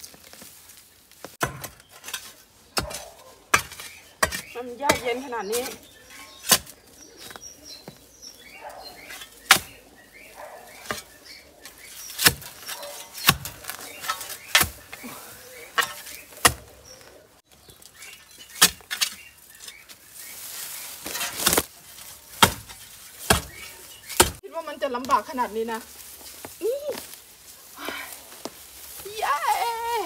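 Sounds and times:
shovel chopping into soil and roots: 1.2 - 7.5, 9.1 - 9.8, 10.8 - 15.0, 15.6 - 17.1, 17.7 - 19.9, 20.8 - 24.4.

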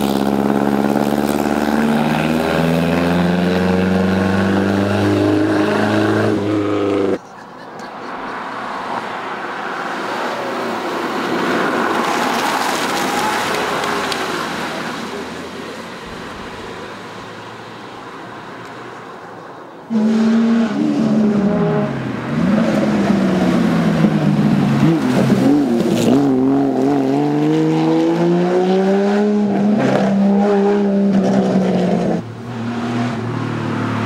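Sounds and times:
car engine accelerating: 0.0 - 7.2, 19.9 - 34.0
car passing by: 8.0 - 19.1.

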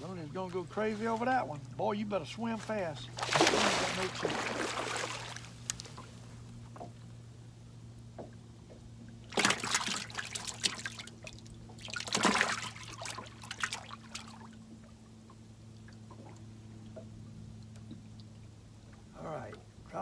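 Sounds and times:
low hum: 0.0 - 20.0
water splashing and trickling: 2.8 - 7.0, 9.0 - 20.0.

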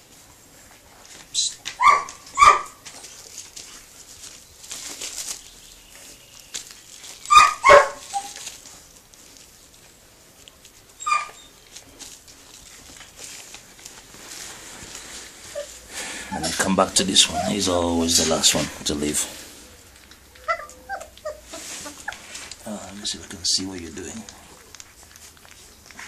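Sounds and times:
dog barking: 1.8 - 2.8, 7.3 - 8.1.

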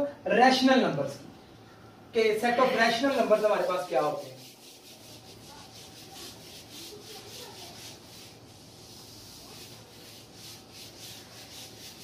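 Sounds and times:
eraser rubbing on whiteboard: 3.1 - 12.0.

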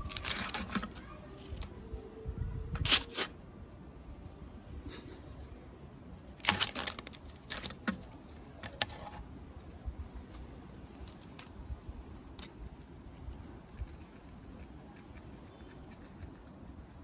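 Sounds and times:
cat claws rustling a leaf: 0.0 - 1.8, 2.7 - 3.4, 6.2 - 17.0.

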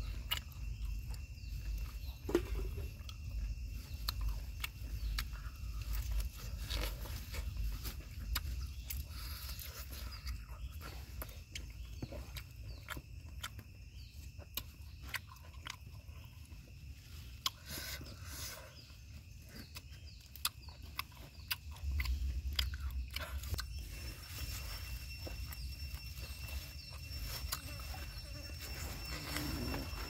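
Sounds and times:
person chewing with mouth smacks: 0.0 - 29.8.

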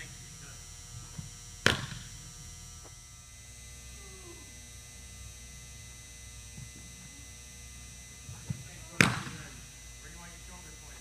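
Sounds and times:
steady electrical hum: 0.0 - 11.0
baseball smacking into mitt: 1.6 - 2.1, 8.3 - 9.5.

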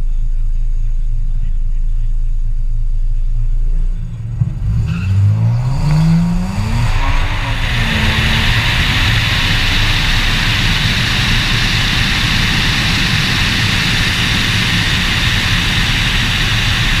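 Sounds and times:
low rumble: 0.0 - 17.0
wind and road noise: 3.9 - 17.0.

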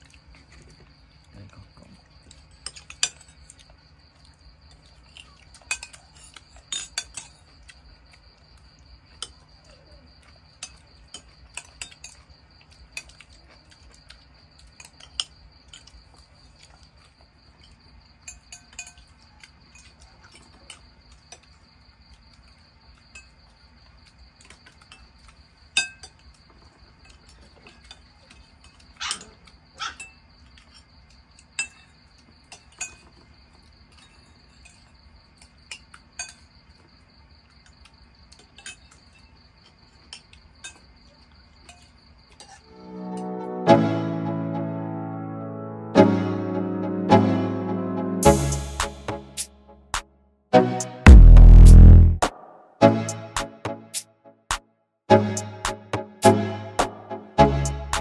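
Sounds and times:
cutlery clinking on plates: 2.3 - 3.6, 5.6 - 7.5, 17.6 - 21.5, 25.8 - 26.2, 30.0 - 33.3, 33.9 - 36.5, 38.4 - 39.4.

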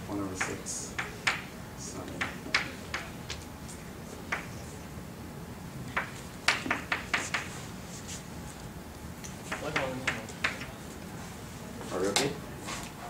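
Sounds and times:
chalk tapping on chalkboard: 0.4 - 1.5, 2.1 - 3.1, 4.3 - 4.5, 6.0 - 7.6, 9.5 - 10.7.

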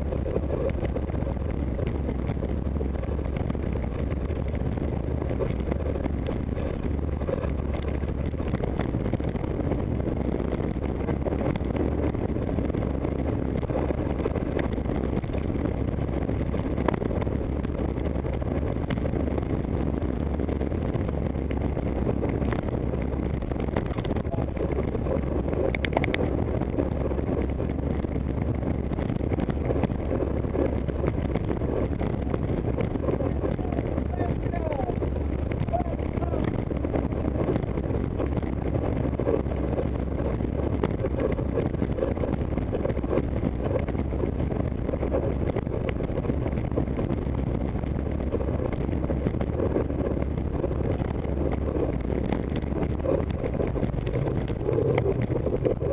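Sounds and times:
road rumble: 0.0 - 55.9
wind rush: 0.0 - 55.9.

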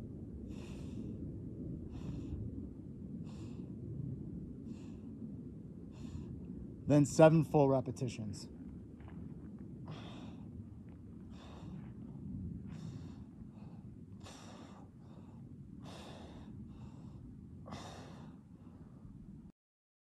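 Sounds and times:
steady low rumble: 0.0 - 19.5
man breathing hard: 0.4 - 1.2, 1.8 - 2.5, 3.2 - 3.8, 4.6 - 5.1, 9.8 - 10.6, 11.2 - 19.2.

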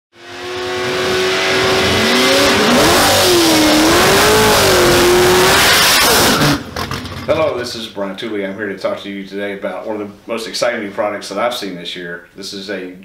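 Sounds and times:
car engine at high revs: 0.1 - 7.2.

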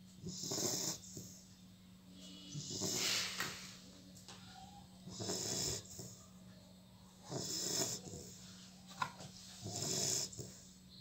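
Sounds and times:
puppy snoring: 0.0 - 1.5, 2.2 - 3.4, 5.0 - 6.3, 7.2 - 8.5, 9.5 - 10.8.

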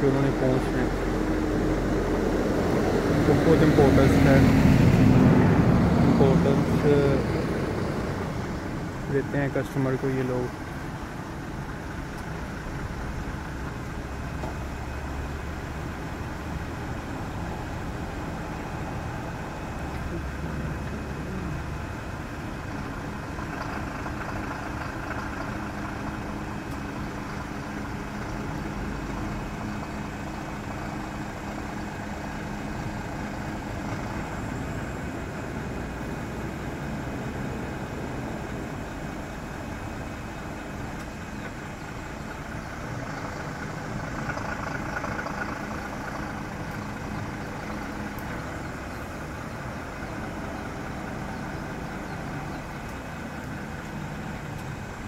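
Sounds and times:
crane engine running: 0.0 - 55.0.

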